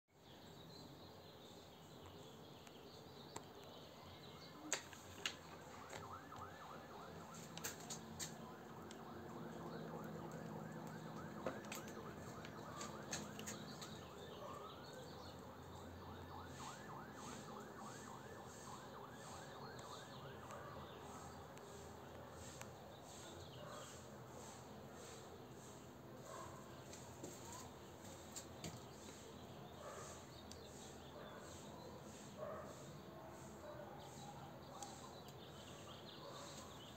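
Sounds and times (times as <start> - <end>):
distant siren yelping: 4.3 - 26.7.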